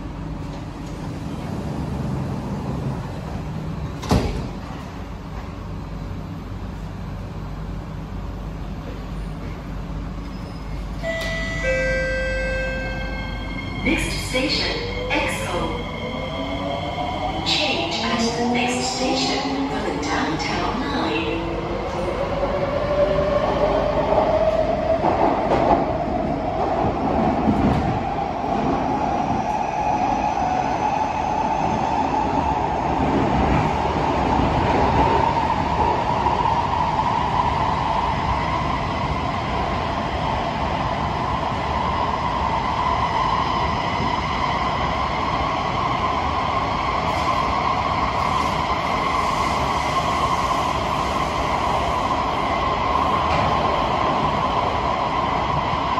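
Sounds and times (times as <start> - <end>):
metro train motor whine: 9.9 - 25.1.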